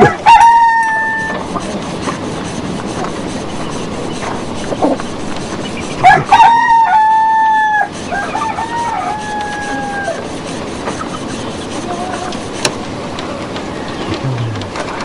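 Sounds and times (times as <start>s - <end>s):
rooster crowing: 0.0s - 1.4s, 6.0s - 10.2s.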